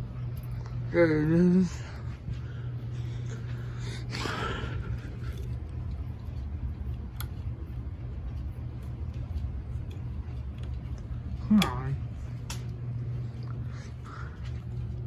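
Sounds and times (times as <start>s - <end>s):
ceiling fan motor hum: 0.0s - 15.0s
fan click: 5.3s - 13.2s.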